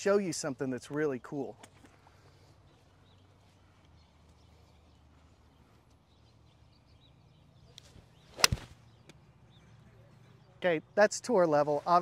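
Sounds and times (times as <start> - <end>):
golf club striking ball: 8.4 - 8.7.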